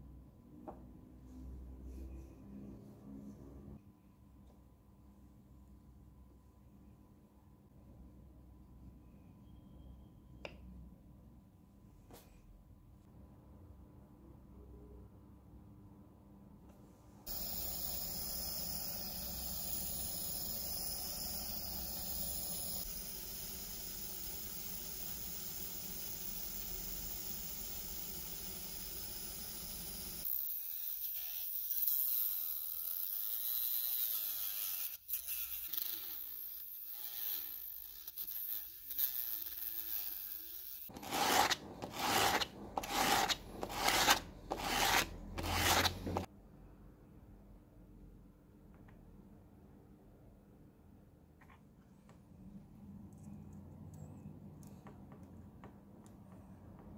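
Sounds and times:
cutting disc cutting plexiglass: 33.9 - 46.3
plastic rubbed on sandpaper: 40.9 - 46.3.

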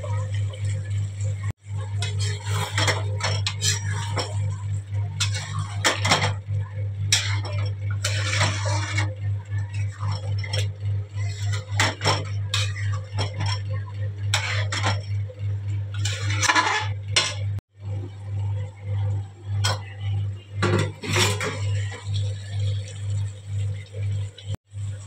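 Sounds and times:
steady low hum: 0.0 - 25.0
spatula scraping metal pan: 2.0 - 4.5, 5.2 - 6.4, 7.1 - 9.1, 11.2 - 13.7, 14.3 - 15.0, 15.9 - 17.4, 20.8 - 22.0.

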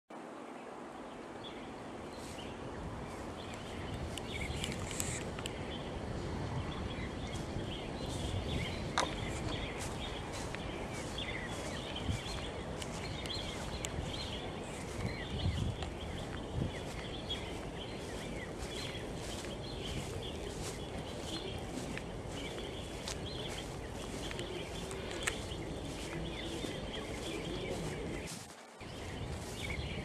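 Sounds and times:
bird chirps: 6.6 - 30.0.

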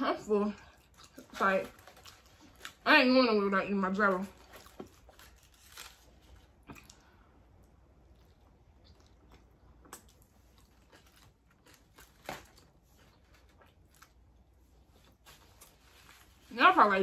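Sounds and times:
close-up chewing: 0.5 - 2.8, 4.4 - 16.4.

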